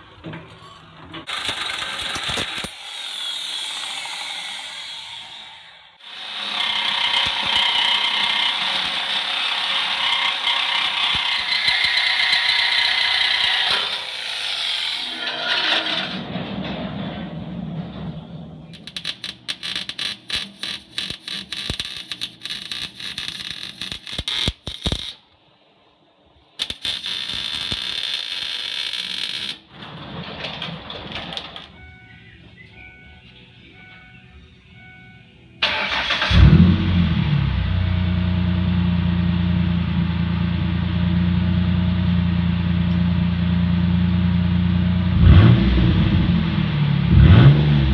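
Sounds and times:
arc welder crackling: 1.2 - 16.2, 18.7 - 25.6, 26.3 - 30.6
power tool cutting pipe: 1.3 - 16.2.

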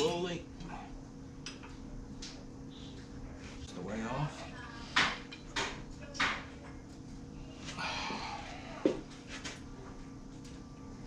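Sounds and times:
faint steady hum: 0.0 - 11.0
man breathing heavily: 7.5 - 9.2.

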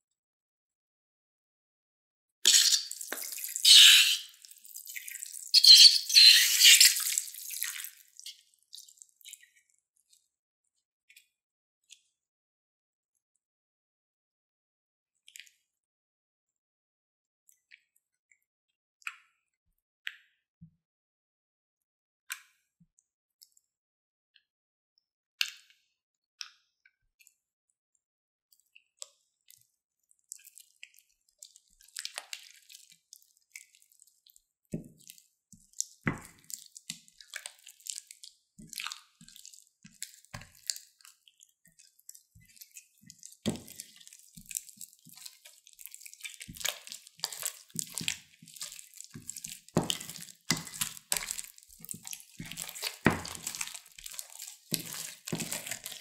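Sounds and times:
spatula stirring slime in bowl: 2.5 - 8.3, 30.4 - 56.0
sticky wet slime squelches: 2.5 - 10.1, 28.6 - 56.0.

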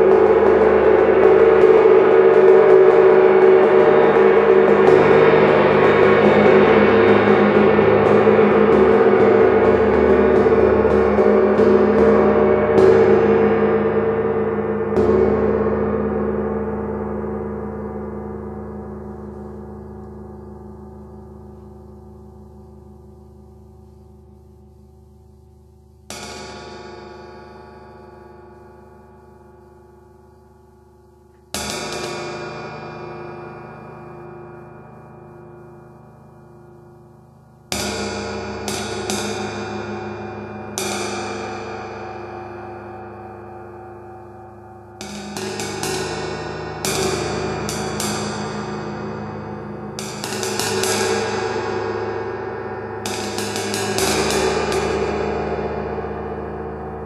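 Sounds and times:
drumsticks tapping gong: 44.9 - 49.0, 49.9 - 51.7, 53.0 - 55.7
gong struck with drumstick: 53.0 - 56.6.

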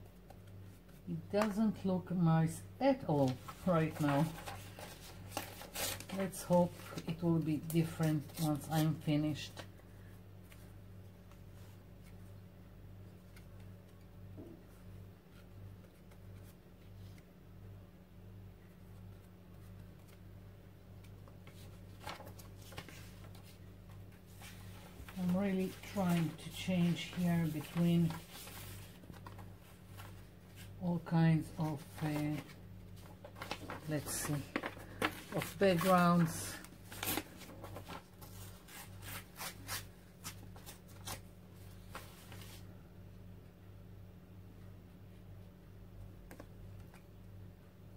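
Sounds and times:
brush rustling paper scraps: 3.2 - 9.4, 24.2 - 30.8, 31.5 - 41.2.

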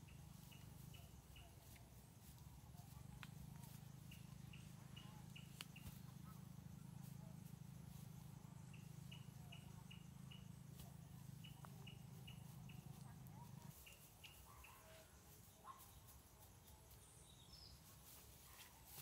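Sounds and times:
faint high chirps: 0.0 - 17.9
steady low hum: 0.0 - 19.0.

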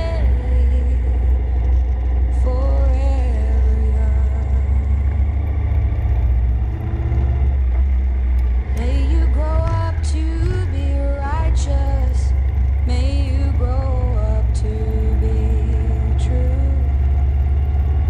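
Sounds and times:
song with sung melody: 0.0 - 5.4, 8.4 - 17.4
motorcycle engine: 0.0 - 18.0
wind rumble: 0.0 - 18.0.

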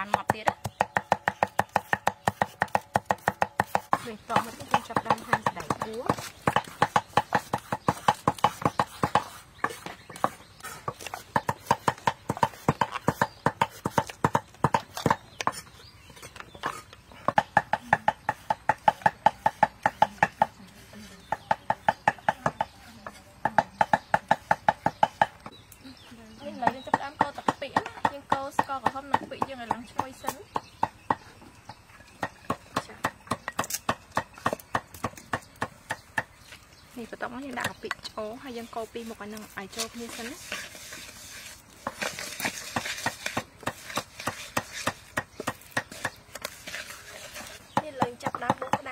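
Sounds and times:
knife chopping on wooden board: 0.0 - 15.8, 16.6 - 20.6, 21.2 - 25.5, 39.7 - 48.9.

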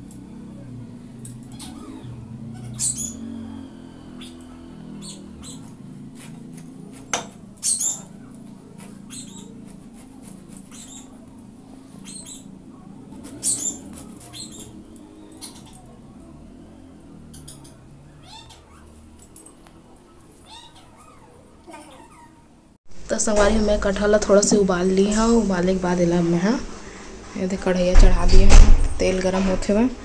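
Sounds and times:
knife cutting and scraping fruit: 5.6 - 11.3.

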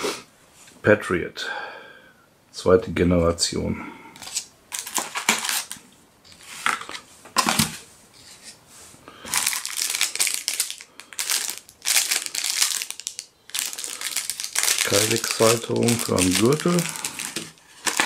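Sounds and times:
cardboard packaging rustling: 4.2 - 5.8, 9.3 - 18.0
plastic bag crinkling: 4.2 - 5.8, 9.3 - 18.0.

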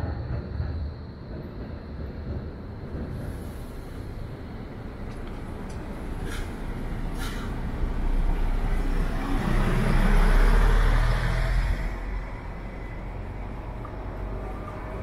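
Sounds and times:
vehicle passing by: 5.9 - 15.0.

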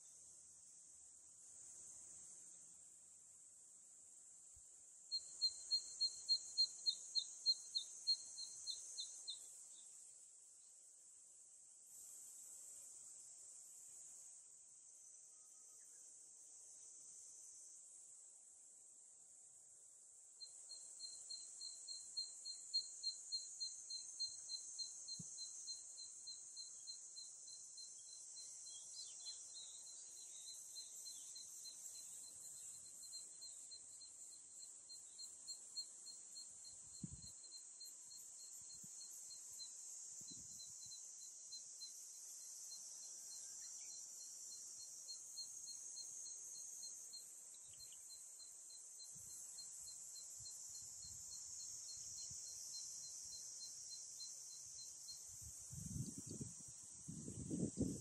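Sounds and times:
cicadas droning: 0.0 - 58.0
pulsing insect call: 5.1 - 9.8, 20.4 - 58.0.

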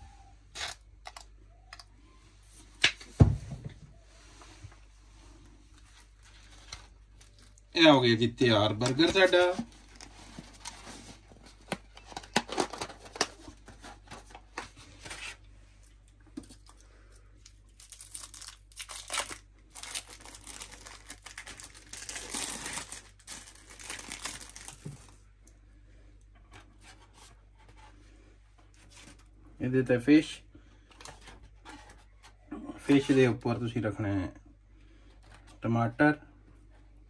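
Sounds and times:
plastic wrap crinkling and tearing: 8.7 - 14.6, 17.4 - 25.2.

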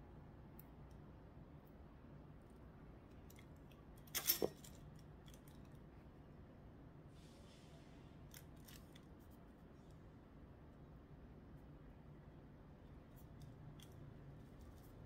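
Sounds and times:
clicks and crackles of handling stems: 2.4 - 5.8, 8.3 - 9.4, 12.8 - 15.0.

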